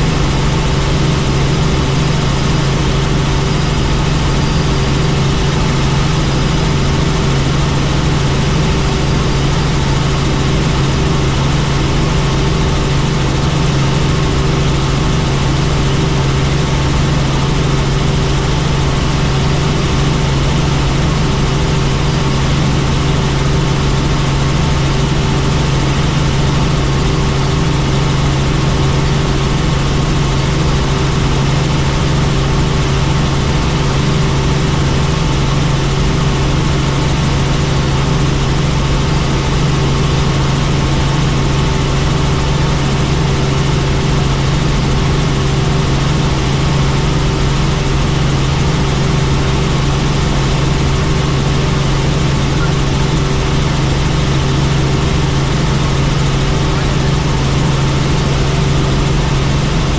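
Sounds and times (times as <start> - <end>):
helicopter drone: 0.0 - 59.9.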